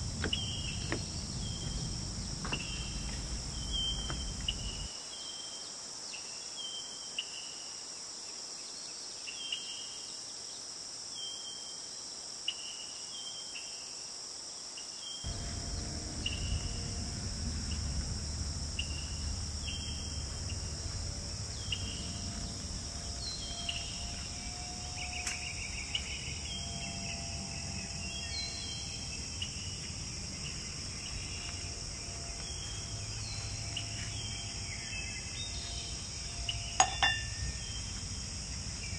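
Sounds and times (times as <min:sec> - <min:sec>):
low rumble: 0:00.0 - 0:04.9, 0:15.3 - 0:38.9
insects buzzing: 0:00.0 - 0:38.9.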